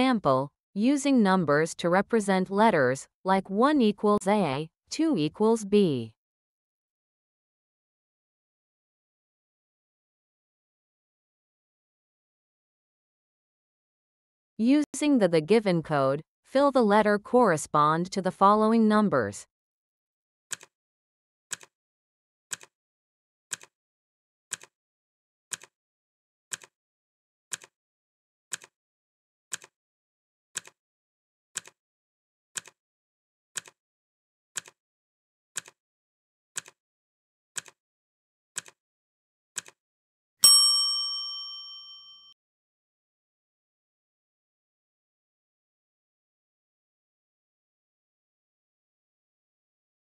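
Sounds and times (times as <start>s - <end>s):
bell ding: 40.4s - 42.4s.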